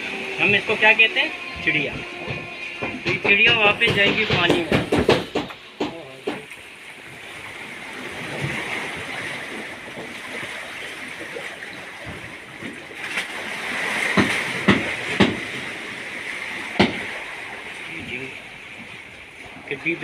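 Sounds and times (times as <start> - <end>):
sea water lapping against rocks: 0.0 - 20.0
sharp knocks: 1.5 - 6.6, 14.1 - 15.6, 16.8 - 17.1.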